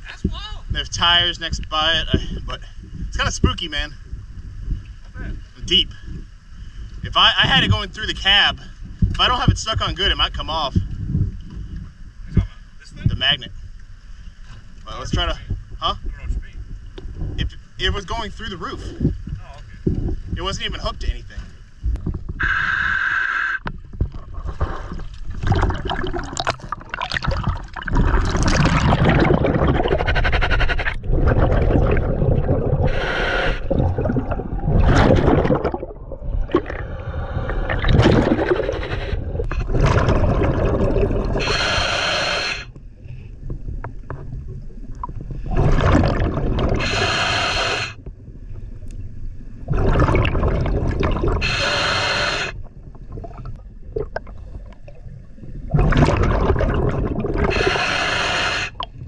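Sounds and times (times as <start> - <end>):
hissing regulator breaths: 22.4 - 23.7, 29.9 - 31.1, 32.7 - 34.0, 36.7 - 39.6, 41.3 - 43.3, 46.7 - 48.0, 51.3 - 52.7, 57.4 - 59.0
gurgling exhaust bubbles: 23.9 - 42.8, 43.5 - 48.3, 49.6 - 59.0.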